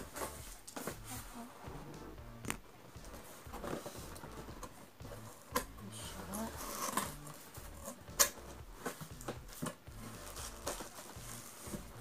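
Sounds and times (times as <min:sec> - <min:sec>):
cardboard box rustling: 0:08.8 - 0:12.0.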